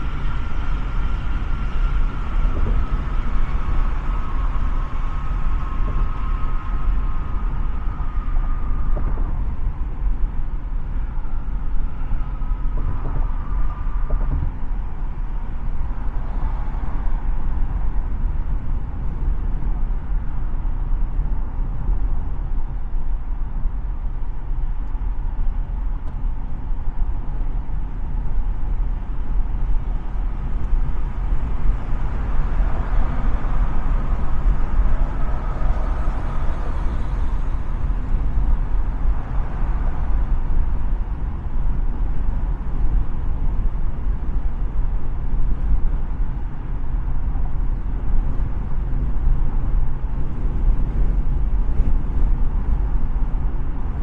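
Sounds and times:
car engine: 0.0 - 54.0.

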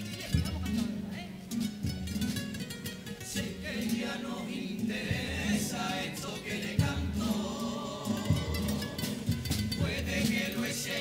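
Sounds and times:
guitars playing: 0.0 - 11.0
chorus singing: 3.2 - 11.0.

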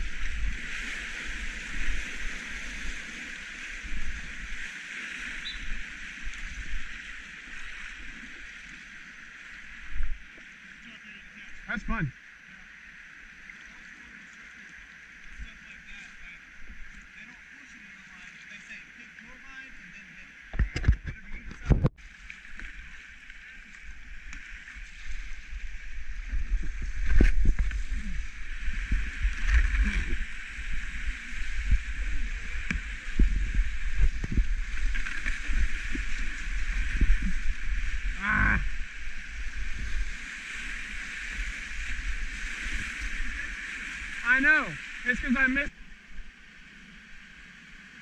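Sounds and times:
paddle strokes splashing: 0.0 - 11.7, 21.2 - 46.8
water sloshing against hull: 0.0 - 46.8.

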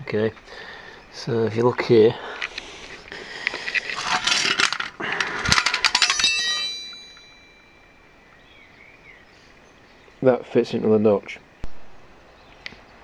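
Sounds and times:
metal clattering on concrete: 3.6 - 7.5
ringing metallic clank: 4.0 - 8.1.

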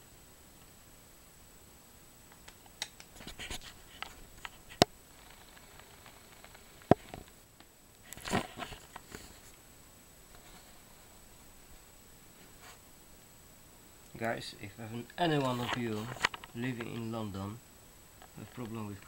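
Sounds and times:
sharp clicks: 2.3 - 3.2.

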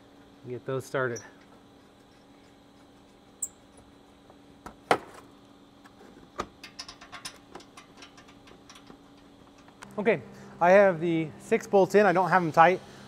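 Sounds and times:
metal clicks and knocks: 6.4 - 9.8.

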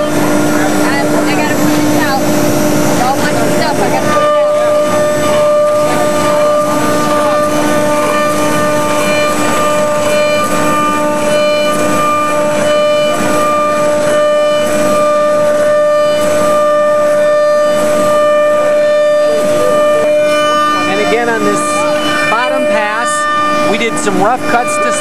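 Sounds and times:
higher tones switching: 0.0 - 25.0
router spindle whining: 0.0 - 25.0.

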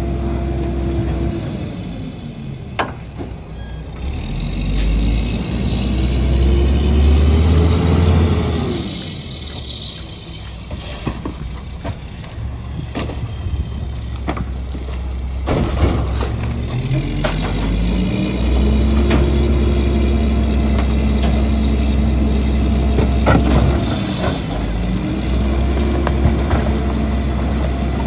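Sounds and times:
truck diesel engine revving: 3.8 - 10.4, 13.6 - 28.0.

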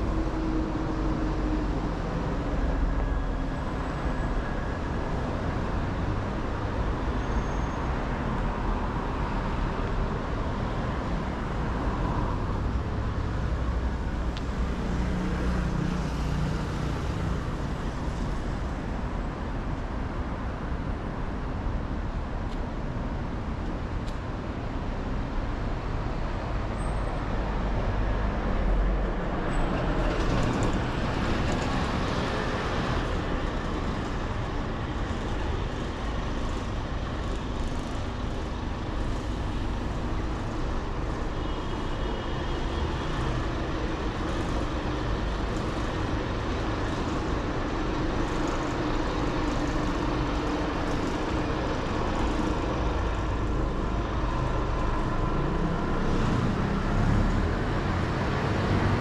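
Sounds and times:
road traffic: 0.0 - 59.0
heavy vehicle engine: 23.4 - 59.0.

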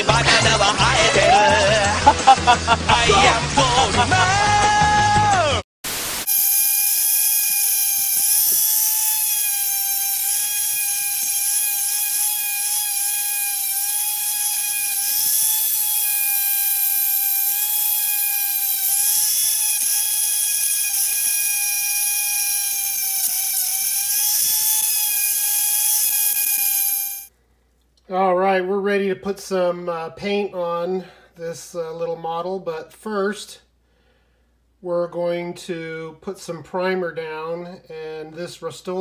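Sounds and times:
rotary tool whining: 6.2 - 27.3.

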